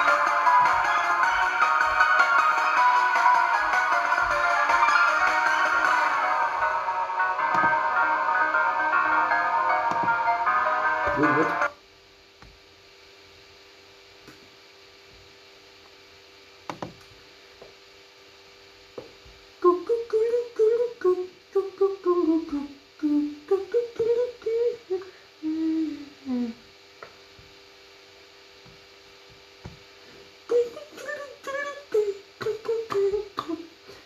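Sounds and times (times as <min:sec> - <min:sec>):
person humming a tune: 0:09.1 - 0:11.7, 0:19.6 - 0:26.7, 0:30.5 - 0:33.8.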